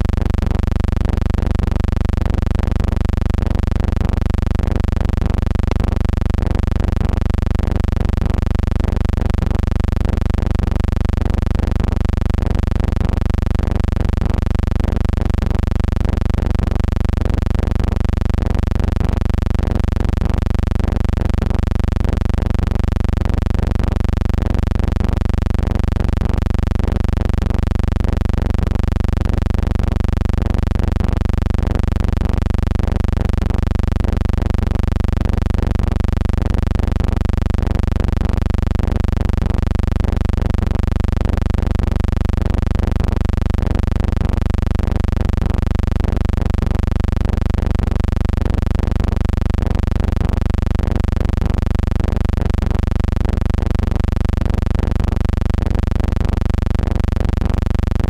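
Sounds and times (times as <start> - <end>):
steady low hum: 0.0 - 45.8.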